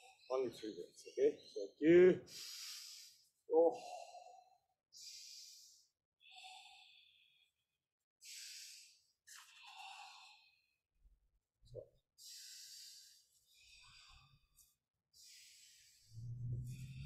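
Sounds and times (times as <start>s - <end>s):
man breathing forcefully: 2.3s - 7.5s, 8.2s - 10.3s, 12.2s - 14.5s.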